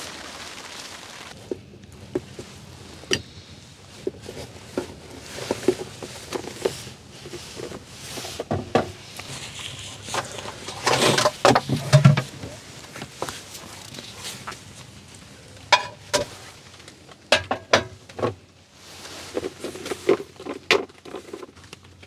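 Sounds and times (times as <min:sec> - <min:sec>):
knocks and clatter of handling: 0:03.9 - 0:14.7, 0:15.6 - 0:18.5, 0:19.1 - 0:22.0.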